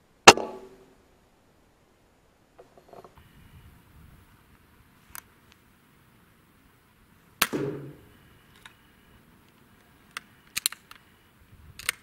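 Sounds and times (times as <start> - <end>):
air rifle shot: 0.3 - 0.8, 7.4 - 8.1
rifle bolt metallic clicks: 10.1 - 11.0, 11.8 - 12.0.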